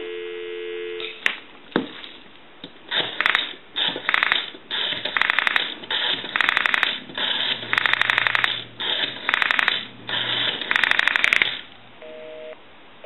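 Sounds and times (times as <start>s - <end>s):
rotary dial clicking: 3.2s - 11.6s.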